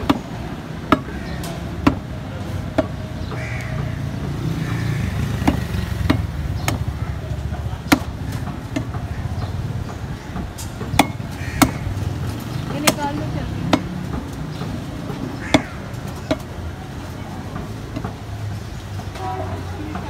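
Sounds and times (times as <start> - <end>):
cleaver chopping on wooden block: 0.0 - 2.1, 2.7 - 3.0, 5.3 - 9.2, 9.9 - 11.9, 12.8 - 16.5.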